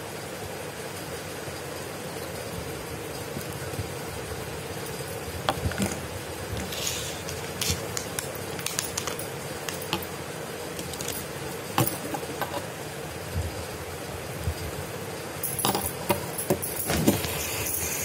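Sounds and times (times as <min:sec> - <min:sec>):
plastic wrapping crinkling: 0:05.3 - 0:10.1.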